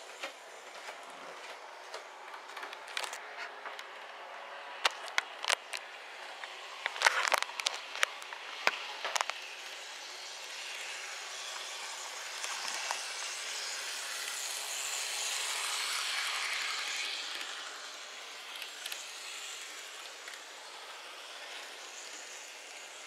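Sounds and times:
model tram motor whirring: 0:04.7 - 0:23.0.

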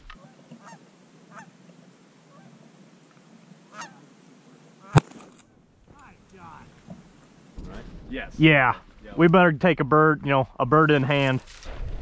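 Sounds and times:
light hiss: 0:00.0 - 0:09.5
geese honking: 0:00.1 - 0:02.8, 0:03.5 - 0:05.1
sharp crack: 0:04.8 - 0:09.4.

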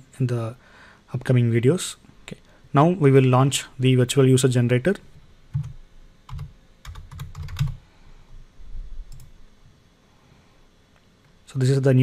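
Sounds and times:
keyboard typing: 0:05.5 - 0:07.8.

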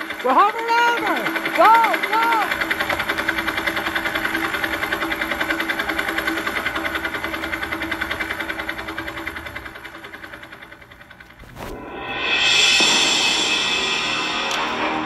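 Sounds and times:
helicopter engine hum: 0:00.0 - 0:11.7
helicopter rotor beating: 0:00.0 - 0:15.0.

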